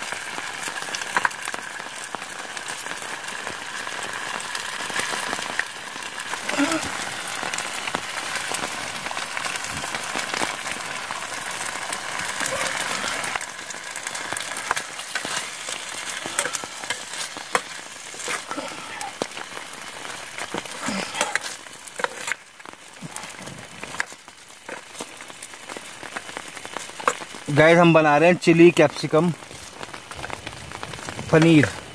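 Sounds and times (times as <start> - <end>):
food sizzling in a frying pan: 0.0 - 31.9
metal spoon scraping a pan: 14.7 - 18.6, 21.1 - 22.4.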